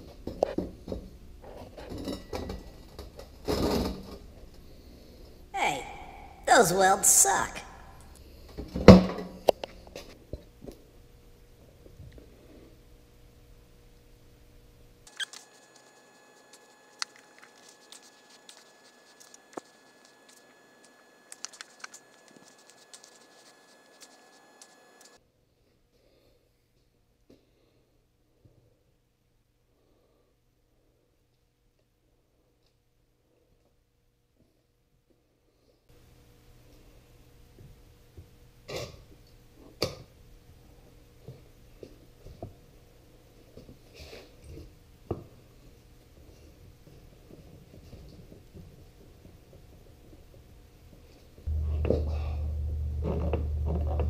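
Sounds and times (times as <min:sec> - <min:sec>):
faint steady hum: 0:35.5 - 0:54.0.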